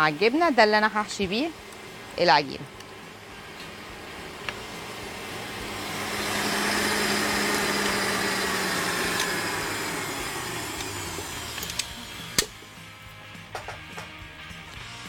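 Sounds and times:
stand mixer motor whining: 2.8 - 12.6.

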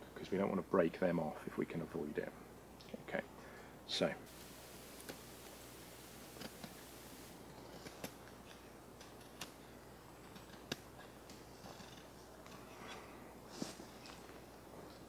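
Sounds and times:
knife snicks carving wood: 6.2 - 14.3.

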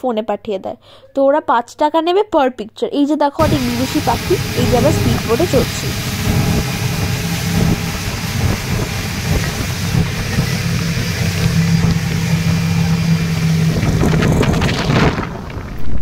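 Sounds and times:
speedboat engine running: 3.4 - 16.0
water rushing: 3.4 - 16.0
wind rushing: 3.4 - 16.0.

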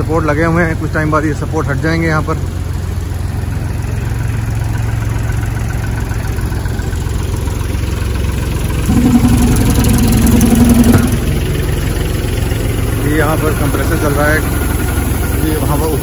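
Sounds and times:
higher steady engine note: 0.0 - 16.0
air compressor engine humming: 8.7 - 16.0.

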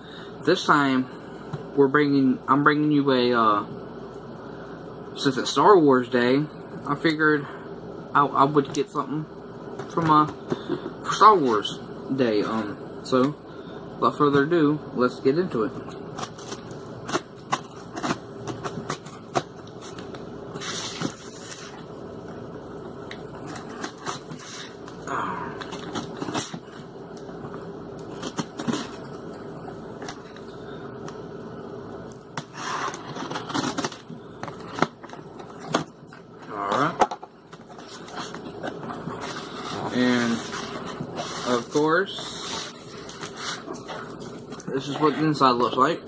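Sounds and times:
blade scraping packing tape: 23.5 - 24.8.

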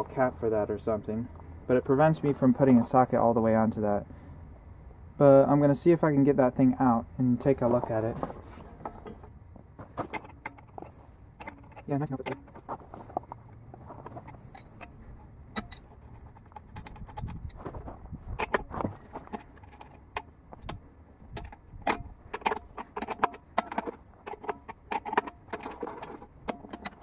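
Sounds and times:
metal tools clinking and rattling: 8.6 - 20.7.

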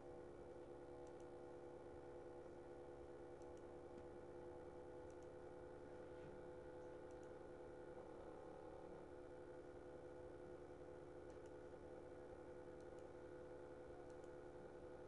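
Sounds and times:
steady low hum: 0.0 - 15.0
computer mouse clicks: 1.0 - 1.3, 3.4 - 4.1, 5.0 - 5.4, 6.8 - 7.4, 11.2 - 11.6, 12.8 - 13.1, 14.0 - 14.4.

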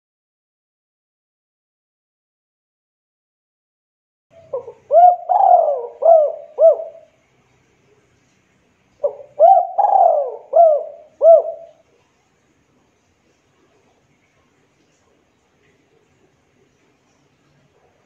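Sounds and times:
dove cooing: 4.4 - 7.2, 9.0 - 11.8.

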